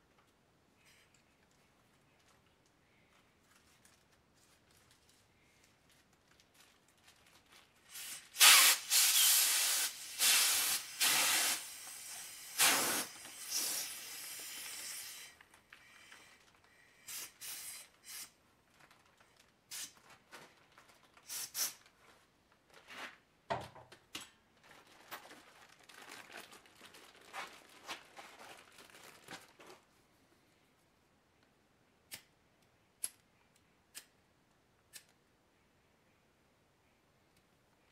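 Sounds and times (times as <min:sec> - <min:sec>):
plastic bag crinkling: 0:01.6 - 0:08.2, 0:14.6 - 0:17.1, 0:17.8 - 0:22.9, 0:24.5 - 0:30.0
loud hissing rush: 0:08.3 - 0:15.3.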